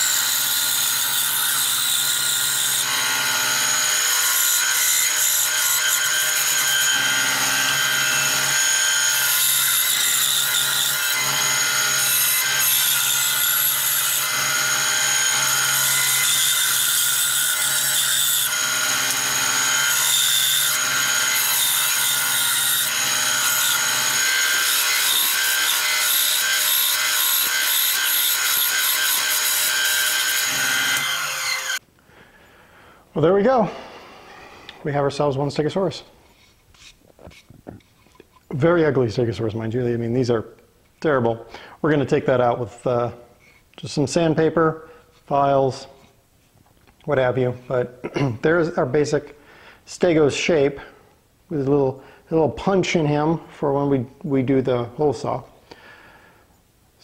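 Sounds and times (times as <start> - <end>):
band saw cutting wood: 0.0 - 31.8.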